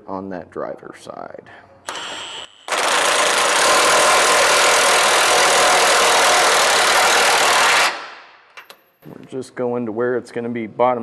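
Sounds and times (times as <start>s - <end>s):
impact wrench hammering: 1.9s - 8.7s.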